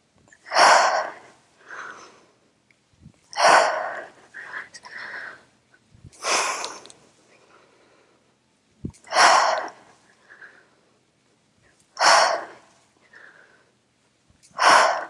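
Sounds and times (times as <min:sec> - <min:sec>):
woman exhaling forcefully: 0:12.0 - 0:12.6, 0:14.6 - 0:15.0.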